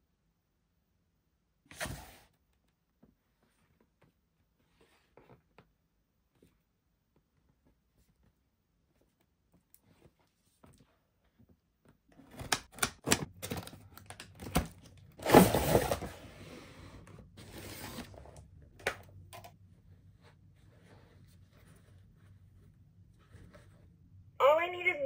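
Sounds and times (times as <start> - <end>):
cardboard tearing scrape: 15.2 - 16.1
cardboard rustling: 17.3 - 18.4.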